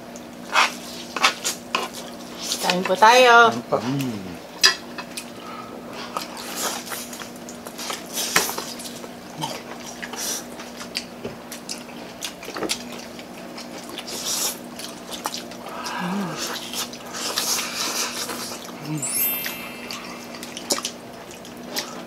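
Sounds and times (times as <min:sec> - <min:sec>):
wet chewing and mouth smacking: 0:05.0 - 0:18.8.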